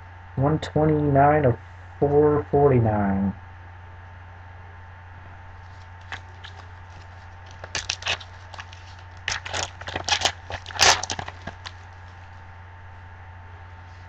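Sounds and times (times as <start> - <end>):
foil wrapper crinkling: 5.6 - 12.3.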